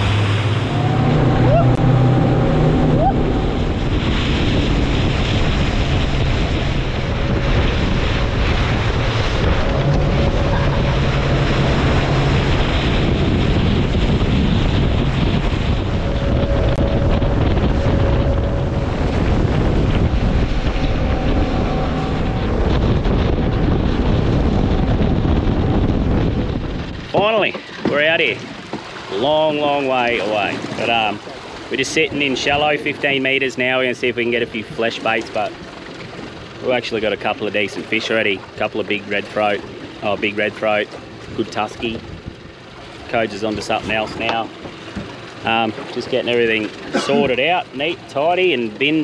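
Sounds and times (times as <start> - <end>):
boat engine drone: 0.0 - 49.0
rush of boat wake: 0.0 - 49.0
wind buffeting microphone: 0.0 - 49.0.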